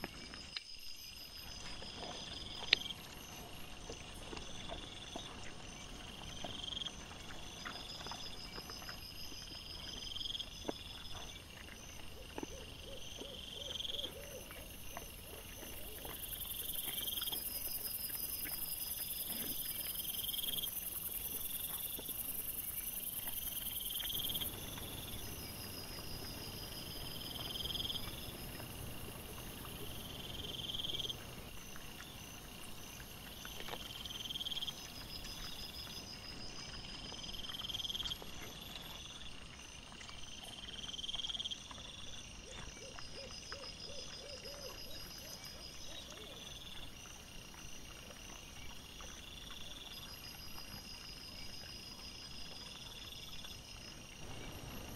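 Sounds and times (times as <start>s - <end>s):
faint pulsed insect trills: 0.0s - 54.9s
insect high chirping call: 12.5s - 39.0s, 54.1s - 54.9s.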